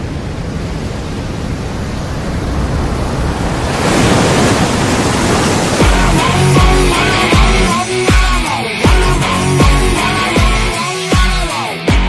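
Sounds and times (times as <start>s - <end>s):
rising rushing whoosh: 0.5s - 8.8s.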